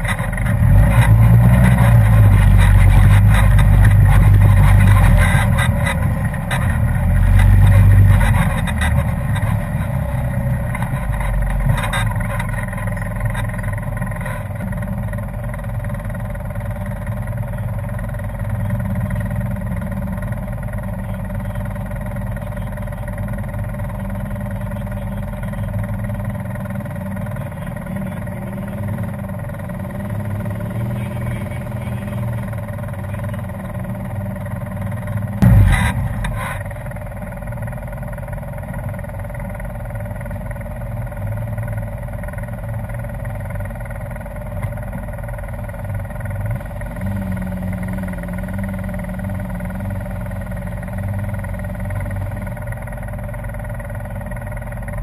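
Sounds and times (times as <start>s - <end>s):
engine running steadily: 0.0s - 55.0s
short loud burst: 35.4s - 36.7s.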